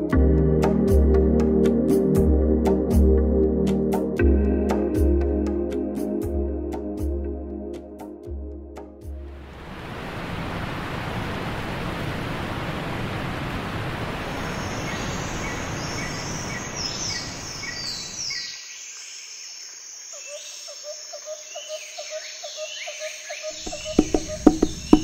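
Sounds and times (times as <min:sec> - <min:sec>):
rushing water: 0:09.2 - 0:17.8, 0:23.6 - 0:25.0
birds chirping: 0:23.6 - 0:25.0.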